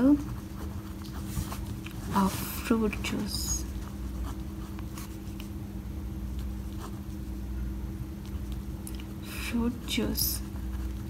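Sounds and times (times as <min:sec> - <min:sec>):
pen scratching on paper: 0:00.0 - 0:01.6
steady low hum: 0:00.0 - 0:11.0.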